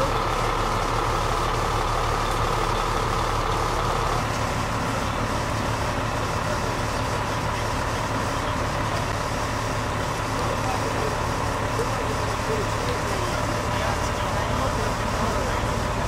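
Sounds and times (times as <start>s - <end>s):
large engine idling: 0.0s - 16.0s.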